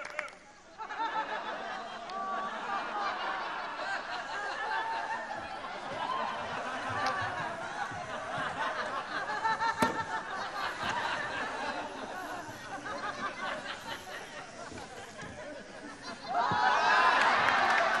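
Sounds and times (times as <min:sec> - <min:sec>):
audience laughing: 0:00.6 - 0:18.0.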